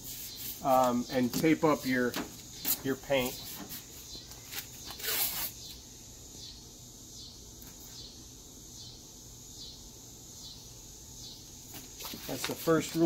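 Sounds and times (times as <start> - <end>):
tape ripping off roll: 4.5 - 5.8.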